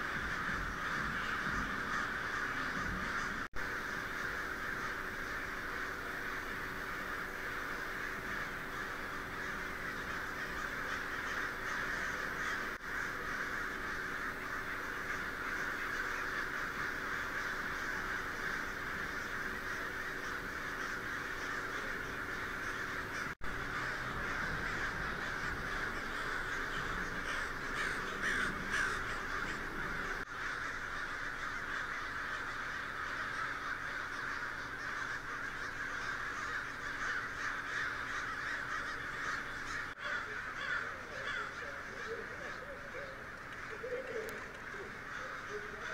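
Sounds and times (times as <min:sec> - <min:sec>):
flock of crows cawing: 0:00.0 - 0:45.9.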